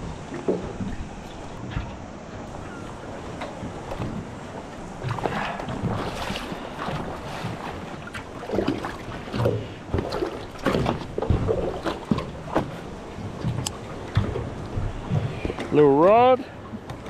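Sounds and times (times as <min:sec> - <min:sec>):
knocks against boat: 0:08.4 - 0:15.8.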